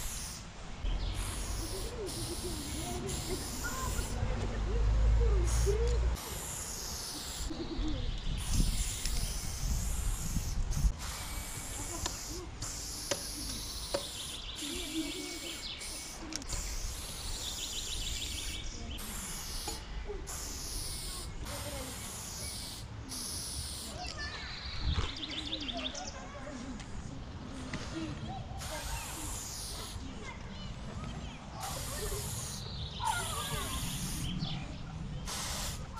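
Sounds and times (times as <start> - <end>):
spray paint can hissing: 0.0 - 0.4, 1.0 - 4.2, 5.4 - 7.7, 8.4 - 24.1, 28.6 - 30.1, 31.6 - 34.4, 35.2 - 35.9.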